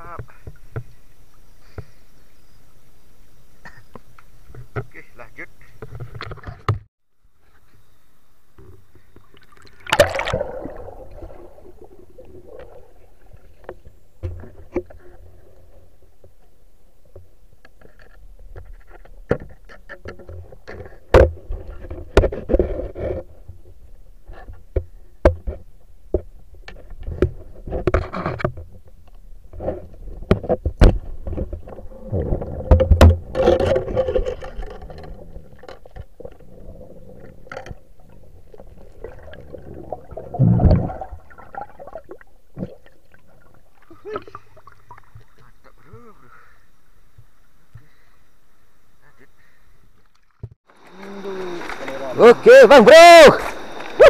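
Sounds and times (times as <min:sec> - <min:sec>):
underwater clicks and knocks: 0:05.8 - 0:06.9, 0:08.6 - 0:15.4, 0:16.2 - 0:43.0
rushing water: 0:09.3 - 0:16.4, 0:50.1 - 0:54.0.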